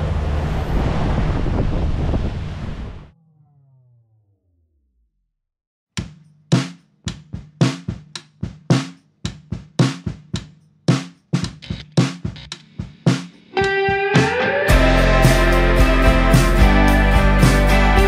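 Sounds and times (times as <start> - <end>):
drum kit beat: 6.0 - 18.0.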